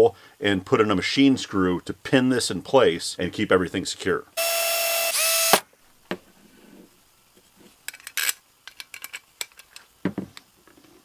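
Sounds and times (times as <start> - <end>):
metal parts clicking and clinking: 7.9 - 9.9.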